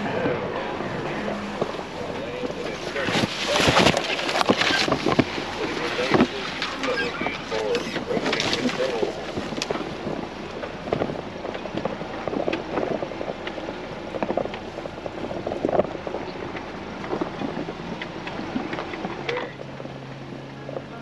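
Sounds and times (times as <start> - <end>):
off-road vehicle rumbling: 0.0 - 21.0.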